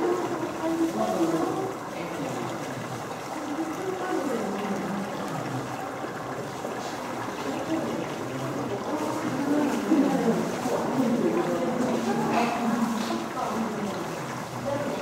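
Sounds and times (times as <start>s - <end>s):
indistinct chatter of voices: 0.0s - 15.0s.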